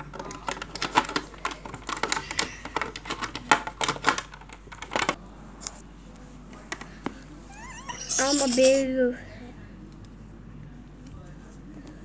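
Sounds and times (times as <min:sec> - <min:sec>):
plastic toys clicking and tapping: 0:00.0 - 0:05.2.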